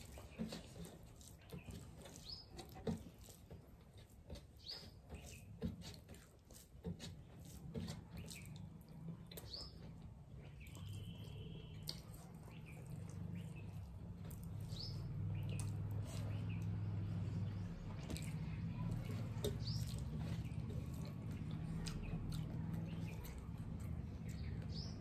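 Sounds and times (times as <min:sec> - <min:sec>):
fingers squishing rice: 0:00.0 - 0:25.0
chewing and lip smacks: 0:05.3 - 0:25.0.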